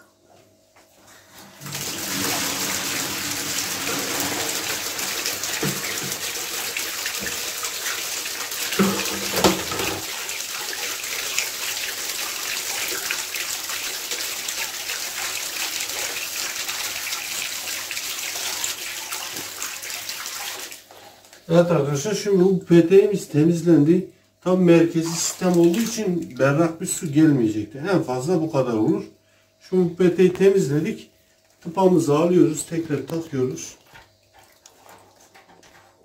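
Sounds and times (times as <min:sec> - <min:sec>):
water splashing into plastic basin: 0:01.6 - 0:21.5, 0:25.0 - 0:26.6.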